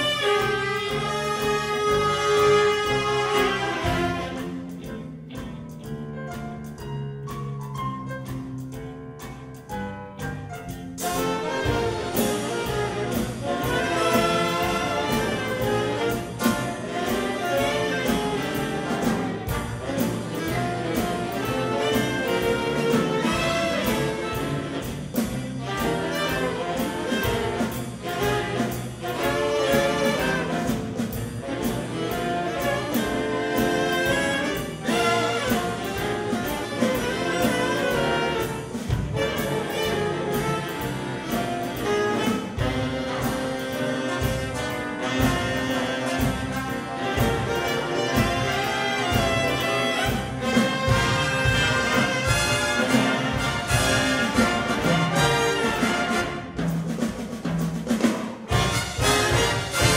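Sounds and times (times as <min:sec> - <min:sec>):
saxophone section: 0:00.0 - 0:04.7, 0:11.0 - 0:56.6, 0:58.5 - 0:59.9
trumpets and trombones: 0:00.0 - 0:04.8, 0:11.0 - 0:57.0, 0:58.4 - 0:59.9
drums: 0:00.0 - 0:59.9
piano: 0:00.0 - 0:59.9
guitar: 0:01.9 - 0:23.6.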